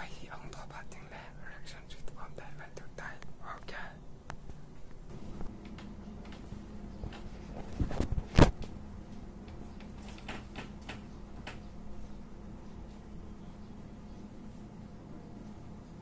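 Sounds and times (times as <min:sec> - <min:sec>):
low steady hum: 0:00.0 - 0:16.0
sharp knocks and clicks: 0:09.4 - 0:11.7.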